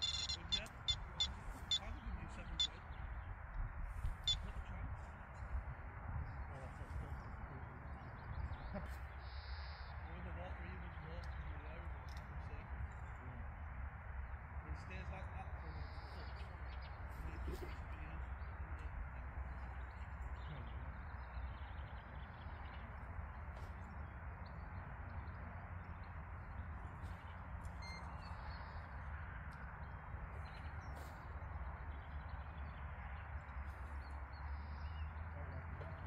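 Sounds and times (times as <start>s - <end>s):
short bird calls: 0.0s - 2.9s.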